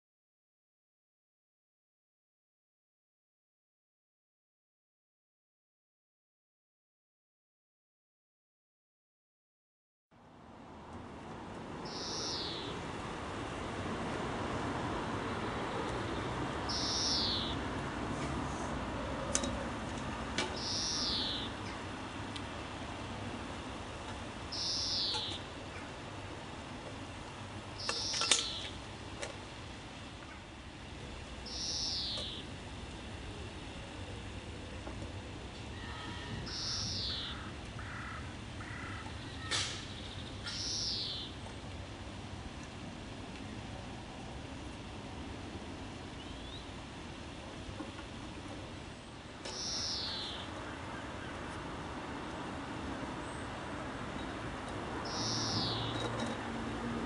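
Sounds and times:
outdoor background noise: 10.1s - 57.0s
bird calling: 11.8s - 12.8s, 16.7s - 17.6s, 20.5s - 21.8s, 24.5s - 26.0s, 27.8s - 28.8s, 31.4s - 32.5s, 35.7s - 41.4s, 49.4s - 51.4s, 55.0s - 56.0s.

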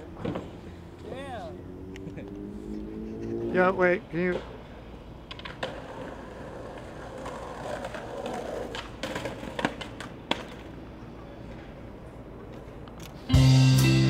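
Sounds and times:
skateboard rolling on asphalt: 0.0s - 12.9s
skateboard clacks: 5.2s - 11.8s.

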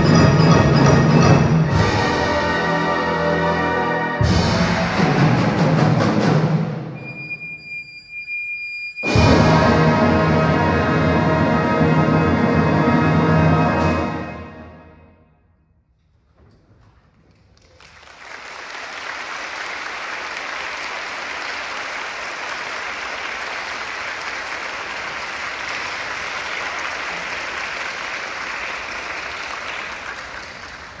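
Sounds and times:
wind band notes: 0.0s - 7.5s, 9.0s - 15.1s
audience applauding: 17.2s - 31.0s.

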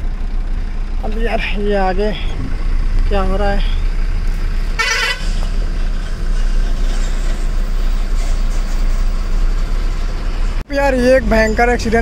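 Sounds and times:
diesel engine running: 0.0s - 12.0s
tyre and road noise: 0.0s - 12.0s.

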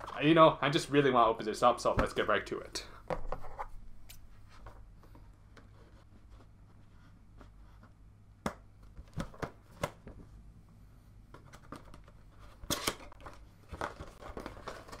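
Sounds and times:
cardboard box rattling and scraping: 13.7s - 15.0s.

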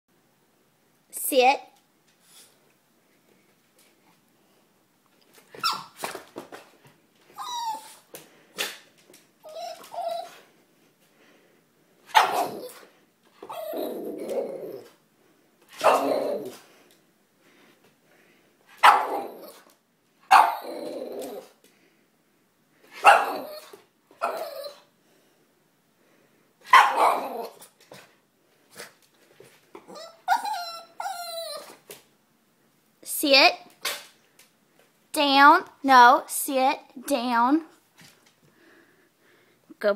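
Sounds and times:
dog barking and yipping: 5.6s - 6.1s, 12.1s - 12.8s, 15.7s - 16.6s, 18.7s - 19.6s, 20.3s - 20.7s, 23.0s - 24.8s, 26.6s - 27.7s, 29.9s - 31.8s
dog barking: 12.1s - 12.8s, 15.8s - 16.2s, 18.8s - 19.2s, 20.3s - 20.6s, 23.0s - 23.6s, 26.7s - 27.6s.

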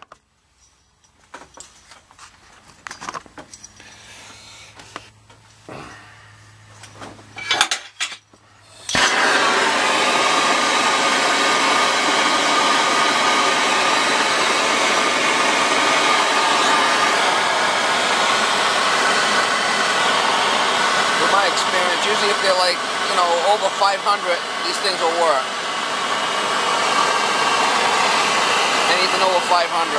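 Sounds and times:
torch flame hissing: 8.6s - 29.9s
gas torch lighting with a pop: 8.7s - 23.2s.

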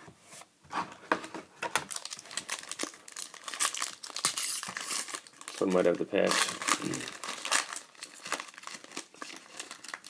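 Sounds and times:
foil wrapper crinkling and tearing: 1.9s - 10.0s.

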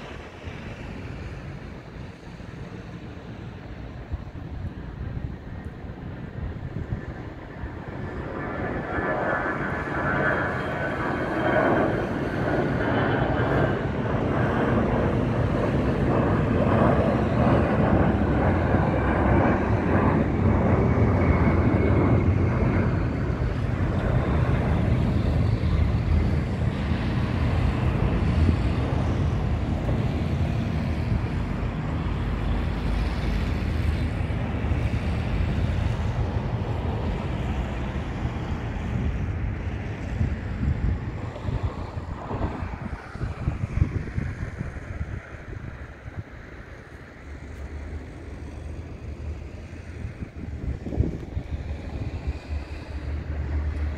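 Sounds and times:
high engine whine: 0.0s - 53.9s
jet engine roar: 0.0s - 53.9s.

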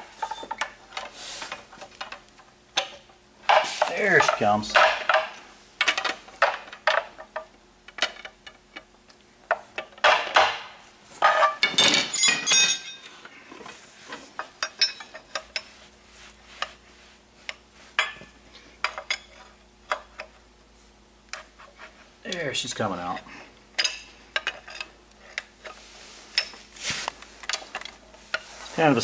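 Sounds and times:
pry bars clinking and scraping metal: 0.1s - 8.9s, 11.2s - 13.2s, 14.4s - 15.7s, 23.8s - 26.6s.

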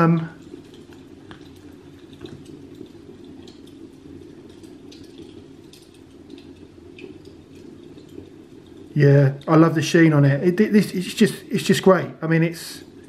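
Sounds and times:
small ticks and clicks: 0.0s - 9.6s.

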